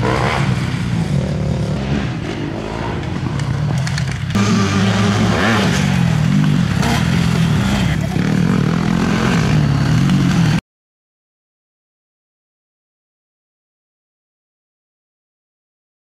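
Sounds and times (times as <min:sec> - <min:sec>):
dirt bike engines revving: 0:00.0 - 0:10.6.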